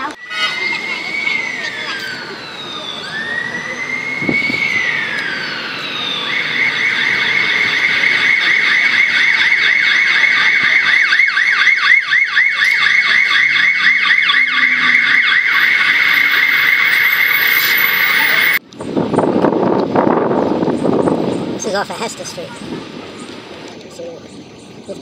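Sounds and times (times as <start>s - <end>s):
emergency siren wailing and yelping: 0.0s - 18.6s
second siren yelping: 0.2s - 18.6s.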